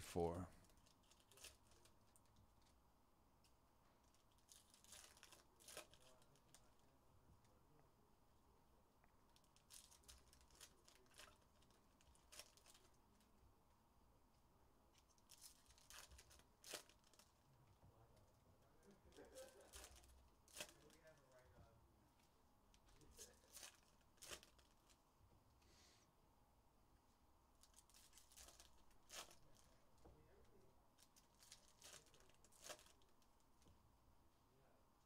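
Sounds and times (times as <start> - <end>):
foil wrappers rustling and tearing: 0.7 - 2.2, 4.1 - 6.7, 9.4 - 13.0, 15.2 - 17.3, 19.1 - 21.1, 23.0 - 25.0, 27.6 - 29.8, 31.0 - 33.2.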